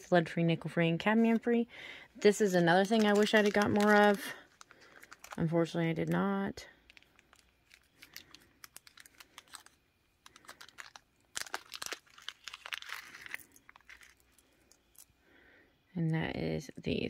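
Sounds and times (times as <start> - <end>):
plastic bag crinkling: 2.3 - 15.2.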